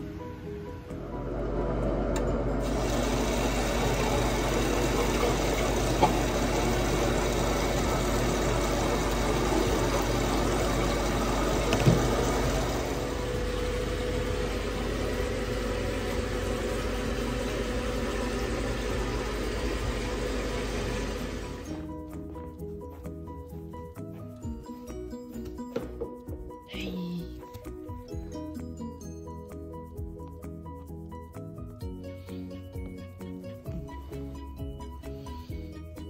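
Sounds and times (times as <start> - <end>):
tap running into sink: 3.6 - 12.8.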